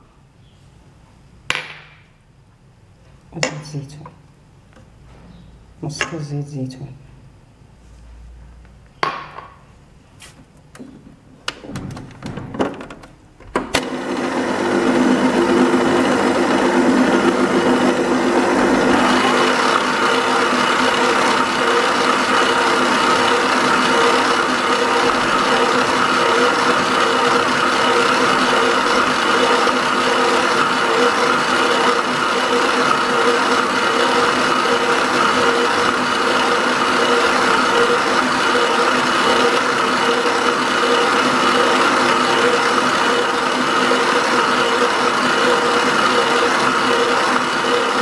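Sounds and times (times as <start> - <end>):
clicks and knocks: 10.6 - 13.9
stand mixer motor whine: 13.8 - 48.0.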